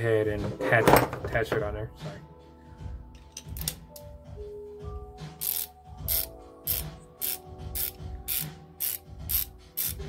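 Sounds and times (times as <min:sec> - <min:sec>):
ratchet clicking: 0:05.4 - 0:10.0.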